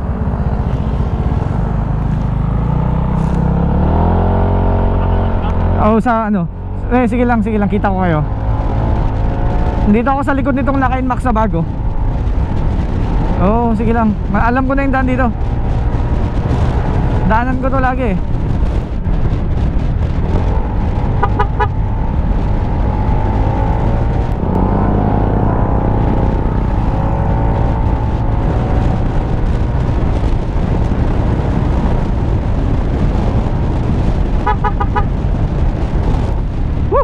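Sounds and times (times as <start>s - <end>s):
motorcycle engine: 0.0s - 37.0s
wind rumble on microphone: 0.0s - 37.0s
horn short toots: 21.2s - 21.7s, 34.4s - 35.1s.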